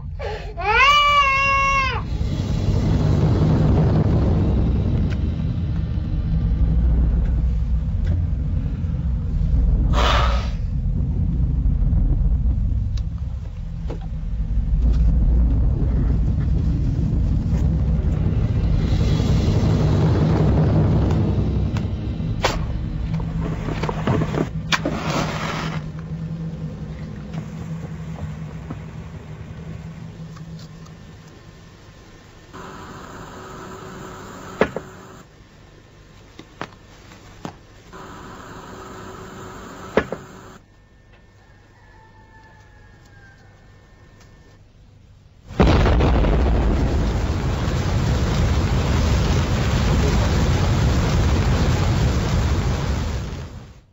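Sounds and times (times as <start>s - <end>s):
low rumbling drone: 0.0s - 34.3s, 45.4s - 53.9s
explosion blast: 1.8s - 25.6s, 45.5s - 53.9s
short hiss: 9.9s - 10.7s.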